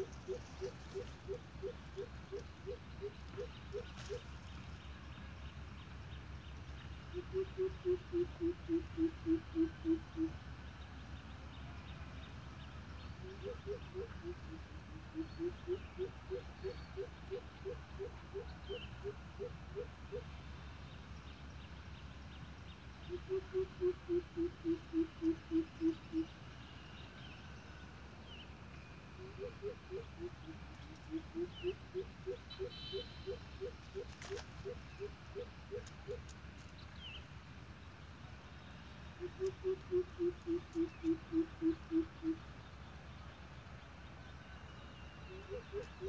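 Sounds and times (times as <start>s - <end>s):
deep bird hoots: 0.0s - 4.2s, 7.1s - 10.4s, 13.2s - 20.3s, 23.1s - 26.3s, 29.2s - 36.3s, 39.2s - 42.4s, 45.3s - 46.0s.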